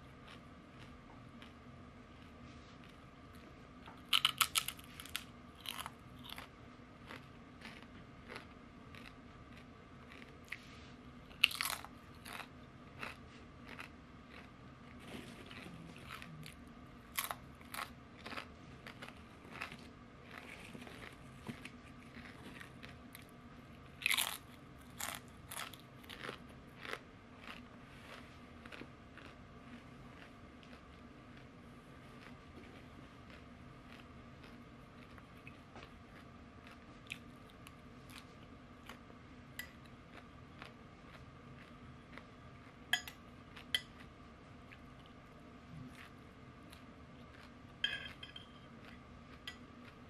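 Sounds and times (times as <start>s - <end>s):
potato chips crunching: 4.0s - 6.5s, 7.1s - 10.6s, 11.3s - 23.3s, 24.0s - 29.4s.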